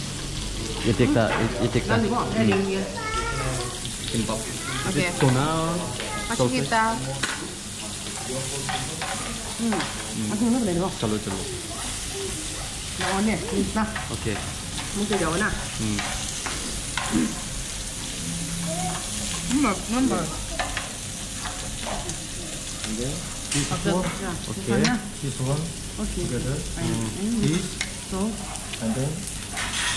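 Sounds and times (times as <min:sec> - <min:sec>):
meat sizzling in a pan: 0:00.0 - 0:29.9
metal tongs stirring meat: 0:07.2 - 0:10.6.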